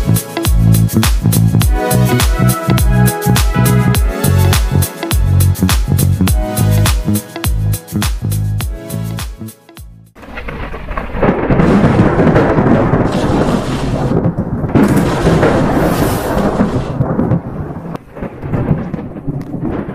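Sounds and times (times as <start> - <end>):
deep thunder-like rumble: 10.2 - 19.9.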